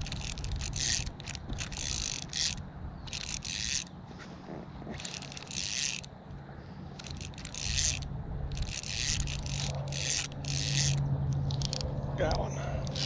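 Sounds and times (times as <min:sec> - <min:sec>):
fishing reel ratcheting: 0:00.0 - 0:04.0, 0:05.0 - 0:06.1, 0:07.0 - 0:11.9, 0:12.8 - 0:13.0.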